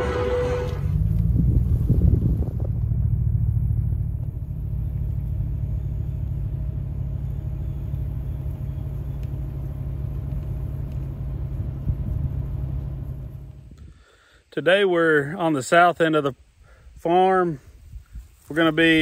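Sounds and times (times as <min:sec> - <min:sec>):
vehicle engine idling: 0:00.0 - 0:14.4.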